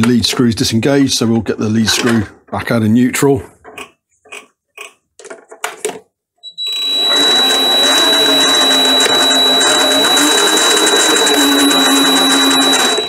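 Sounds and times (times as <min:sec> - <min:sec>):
lathe motor whining: 0:06.6 - 0:13.0.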